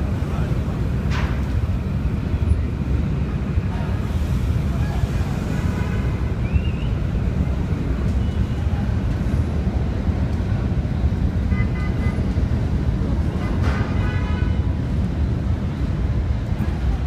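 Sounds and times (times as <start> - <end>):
city traffic rumble: 0.0 - 17.0.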